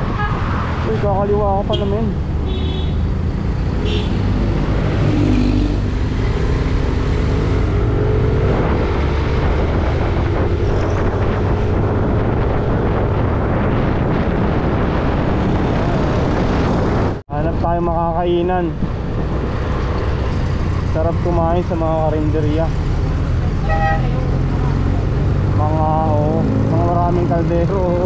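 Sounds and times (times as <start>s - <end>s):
wind noise: 0.0s - 22.4s
road noise: 0.0s - 28.0s.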